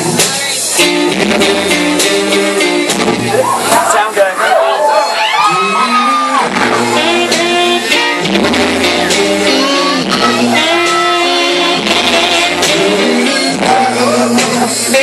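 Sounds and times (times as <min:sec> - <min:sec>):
song with singer and guitar: 0:00.0 - 0:15.0.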